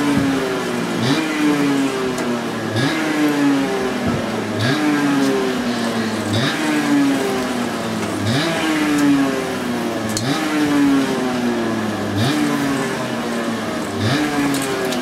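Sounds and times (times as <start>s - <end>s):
two-stroke engine revving: 0.0s - 15.0s.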